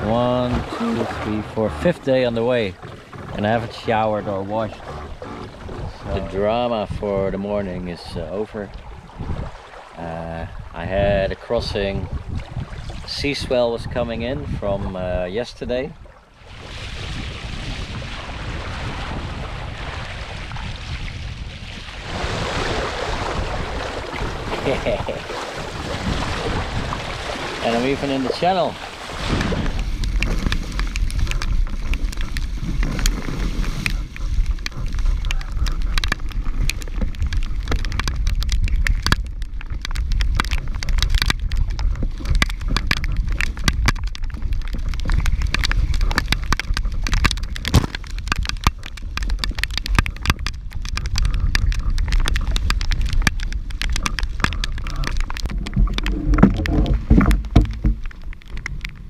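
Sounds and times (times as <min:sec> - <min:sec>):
raindrops ticking on camera: 0:00.0 - 0:07.8, 0:29.4 - 0:59.0
water rushing along hull: 0:00.0 - 0:59.0
wind buffeting microphone: 0:00.0 - 0:59.0.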